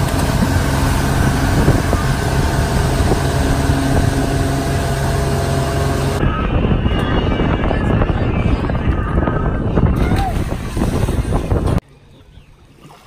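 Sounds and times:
water rushing from wake: 0.0 - 6.4
motorboat engine running: 0.0 - 12.4.

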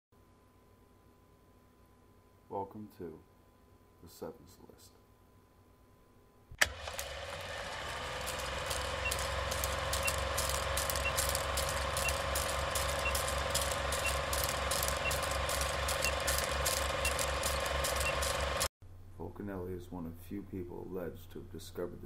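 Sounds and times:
film projector clatter: 6.6 - 18.7.

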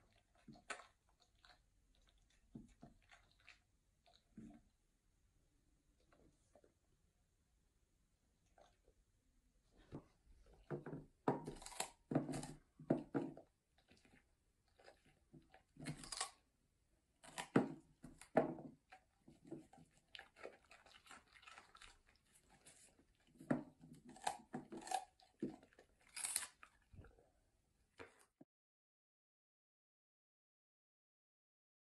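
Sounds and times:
dog crunching food: 13.8 - 16.4, 19.8 - 22.9, 23.6 - 27.2.

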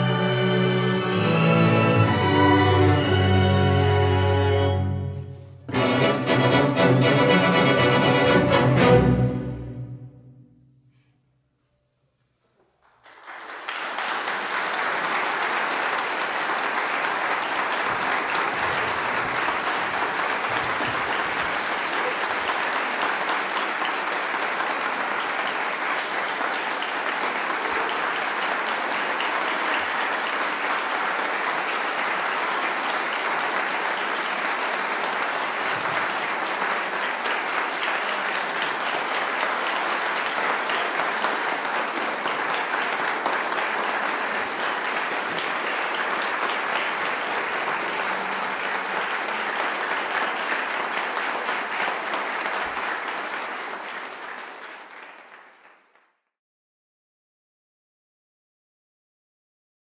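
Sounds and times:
audience applauding: 12.7 - 56.2.

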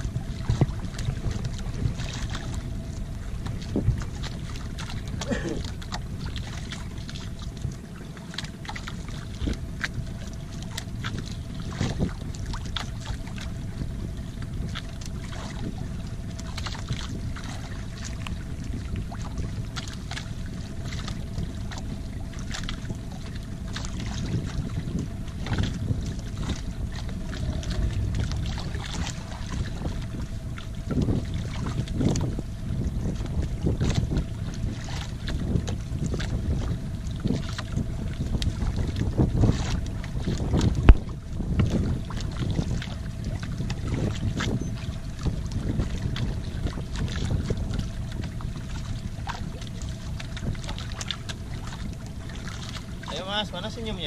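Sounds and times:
boat engine hum: 0.0 - 54.0
water splashing: 0.0 - 54.0
knocks against hull: 38.3 - 42.9.

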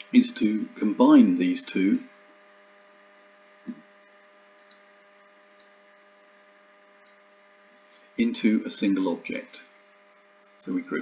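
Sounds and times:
faint electrical hum: 0.0 - 11.0
computer mouse clicks: 4.6 - 5.8, 6.9 - 7.2.

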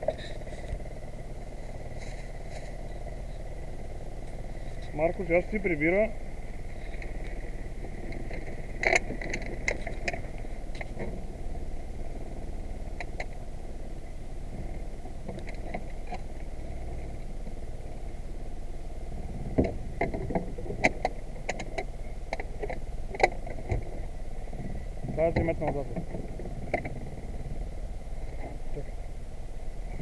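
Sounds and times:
steady low rumble: 0.0 - 30.0
gear clattering on boat floorboards: 19.4 - 27.2.

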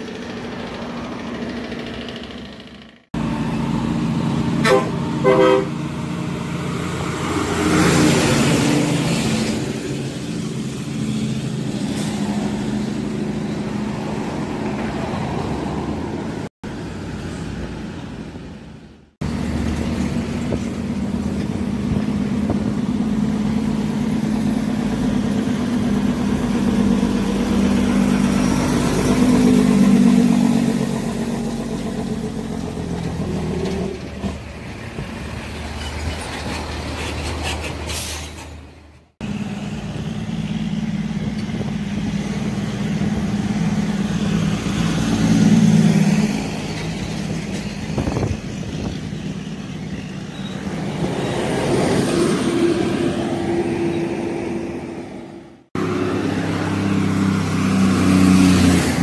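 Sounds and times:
diesel trucks rumbling past: 0.0 - 59.0
truck horn toots: 4.6 - 6.0.

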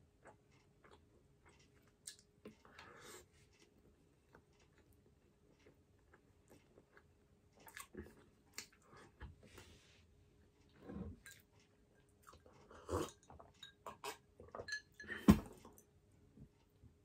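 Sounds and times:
chewing and mouth noises: 3.6 - 9.2.

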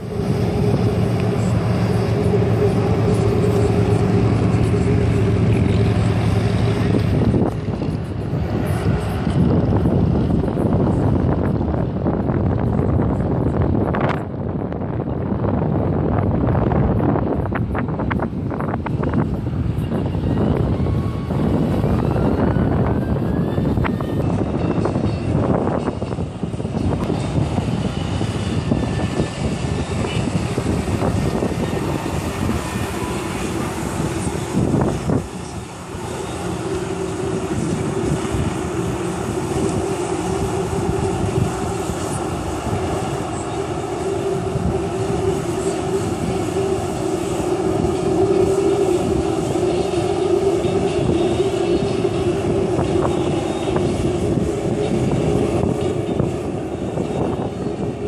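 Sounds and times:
watercraft engine droning: 0.0 - 58.0
water jets rushing: 26.4 - 57.9.

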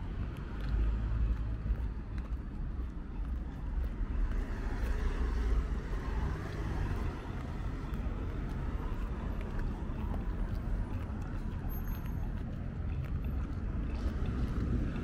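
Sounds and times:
hum of traffic: 0.0 - 15.0
vehicle passing: 4.0 - 15.0.

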